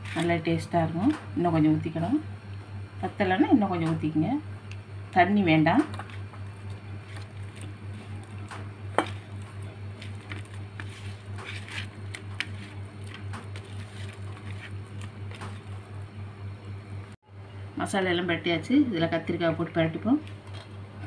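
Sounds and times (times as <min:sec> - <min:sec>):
low hum: 0:00.0 - 0:21.0
wet squishing and patting of paste: 0:05.8 - 0:16.0.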